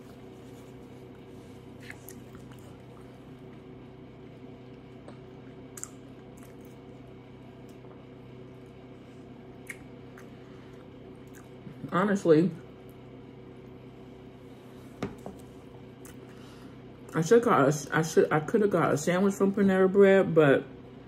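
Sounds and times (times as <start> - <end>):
quiet chewing: 0.0 - 3.8, 4.6 - 11.8
steady low hum: 0.0 - 21.0.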